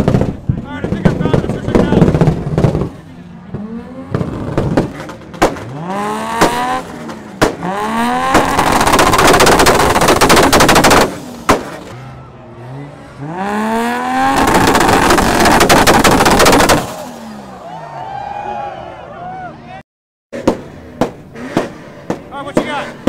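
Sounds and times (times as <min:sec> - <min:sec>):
exhaust bangs and rapid popping: 0:00.0 - 0:12.0, 0:13.4 - 0:17.2, 0:20.4 - 0:23.0
car engine revving: 0:00.0 - 0:17.7, 0:20.4 - 0:23.0.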